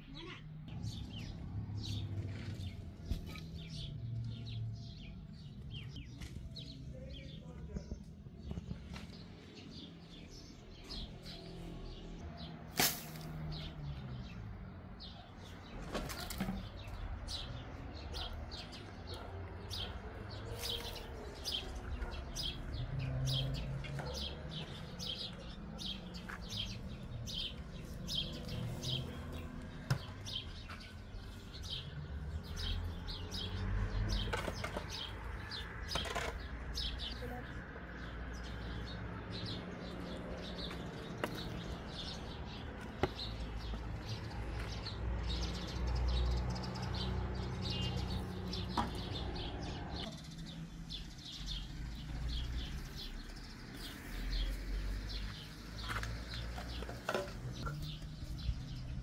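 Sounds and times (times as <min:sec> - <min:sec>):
small birds chirping: 0:00.0 - 0:59.0
digging tool knocking and scraping soil: 0:34.2 - 0:35.0, 0:35.8 - 0:36.6.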